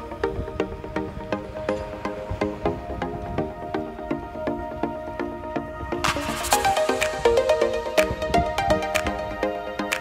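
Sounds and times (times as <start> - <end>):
sustained melodic notes: 0.0 - 10.0
percussive beat: 6.0 - 10.0.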